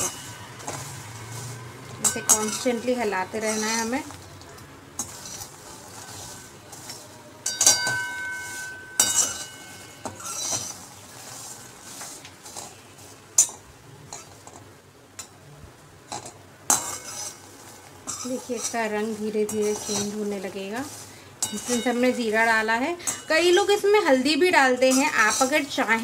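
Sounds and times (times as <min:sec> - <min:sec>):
pan ringing: 0:00.0 - 0:04.0, 0:07.4 - 0:10.8, 0:21.4 - 0:24.2
spatula scraping steel pan: 0:00.0 - 0:04.2, 0:05.0 - 0:14.4, 0:16.7 - 0:26.0.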